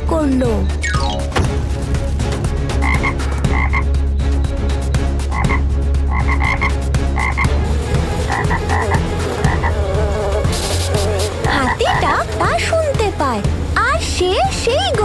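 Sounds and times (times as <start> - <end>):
frogs croaking: 2.7 - 12.4.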